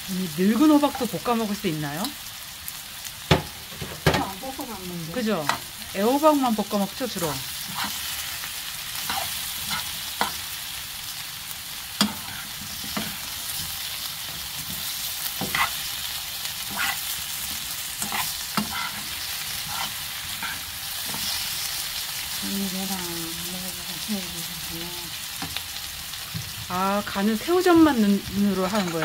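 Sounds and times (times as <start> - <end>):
pumpkin sizzling in frying pan: 0.0 - 29.0
metal spoon scraping pan: 7.6 - 8.3, 9.0 - 10.4, 12.0 - 16.0, 16.6 - 21.7, 28.3 - 29.0.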